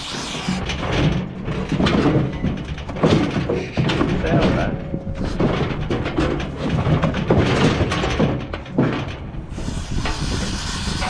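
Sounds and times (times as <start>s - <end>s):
aerosol paint can hissing: 0.0s - 0.6s, 9.6s - 11.0s
knocks: 0.7s - 9.3s.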